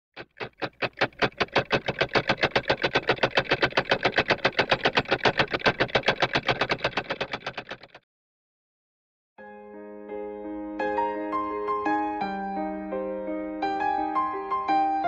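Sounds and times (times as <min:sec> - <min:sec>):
rapid even chopping pulse: 0:00.2 - 0:08.0.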